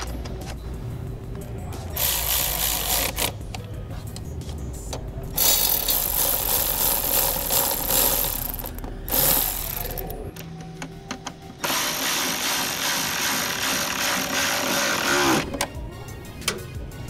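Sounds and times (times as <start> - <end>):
electric ratchet whirring: 2.0 - 3.4, 5.4 - 10.3, 11.6 - 15.5
ratchet clicks: 5.4 - 10.2.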